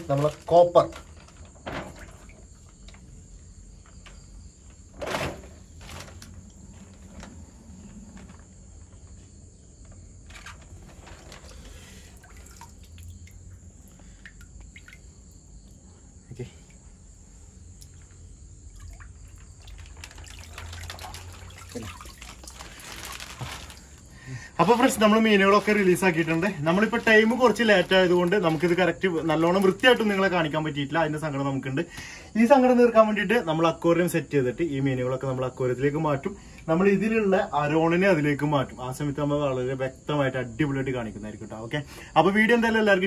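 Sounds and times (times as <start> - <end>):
water sloshing and trickling: 0.0 - 30.5
plastic bag bump: 4.9 - 7.4, 19.6 - 24.0.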